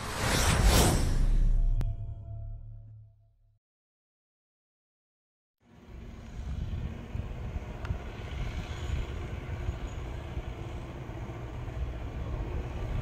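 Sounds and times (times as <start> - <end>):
distant electric train rumbling: 5.7 - 13.0.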